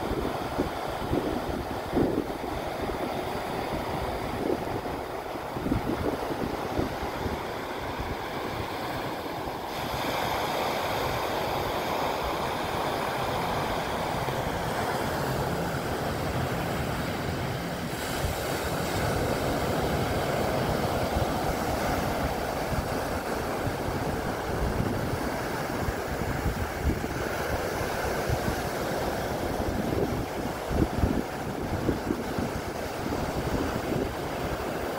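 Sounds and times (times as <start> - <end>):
surf breaking on beach: 0.0 - 34.9
wind buffeting microphone: 0.0 - 34.9.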